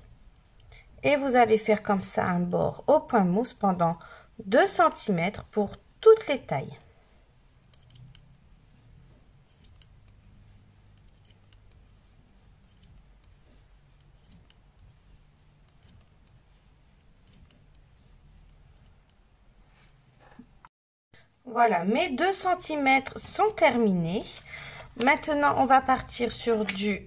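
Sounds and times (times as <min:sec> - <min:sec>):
knitting needles clicking: 0:00.3 - 0:00.8, 0:07.6 - 0:08.5, 0:09.5 - 0:10.2, 0:10.9 - 0:11.9, 0:12.5 - 0:13.4, 0:14.0 - 0:15.0, 0:15.6 - 0:16.4, 0:17.0 - 0:19.2.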